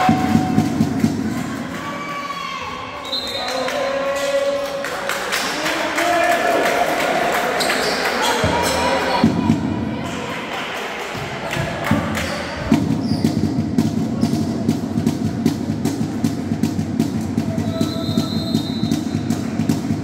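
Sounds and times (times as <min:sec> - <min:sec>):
drums beating low thumps: 0:00.0 - 0:01.3, 0:09.2 - 0:09.9, 0:12.0 - 0:20.0.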